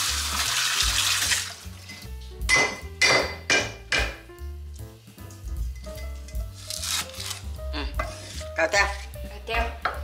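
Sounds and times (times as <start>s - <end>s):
water running from tap: 0.0s - 2.5s.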